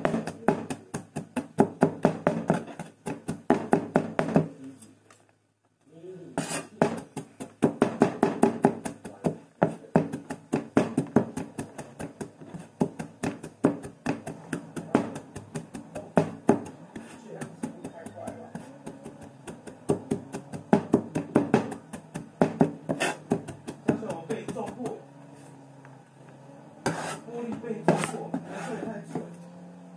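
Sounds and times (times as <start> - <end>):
knife chopping on cutting board: 0.0 - 4.5, 6.4 - 25.0, 26.9 - 27.2, 27.9 - 28.8.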